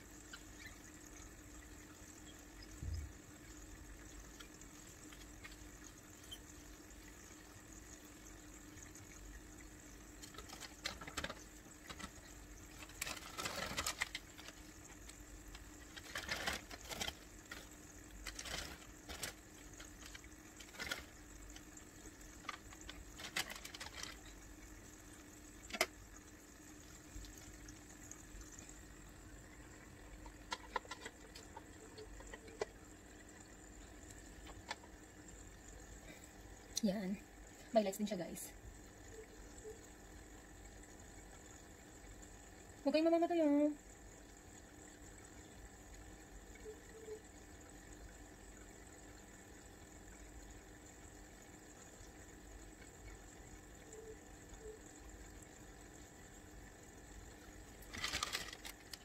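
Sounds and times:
steady low hum: 0:00.0 - 0:59.0
water splashing and pouring: 0:02.6 - 0:35.6, 0:56.6 - 0:59.0
small clicks: 0:57.8 - 0:59.0.

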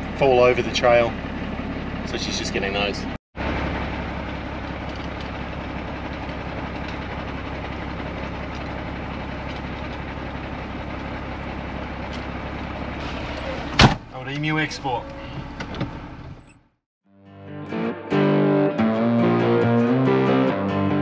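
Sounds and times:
truck diesel engine running: 0:00.0 - 0:16.8.

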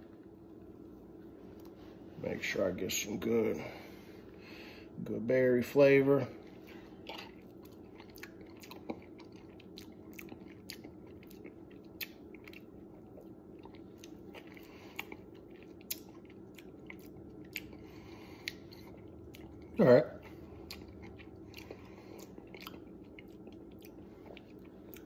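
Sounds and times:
person chewing and smacking: 0:06.4 - 0:25.0.

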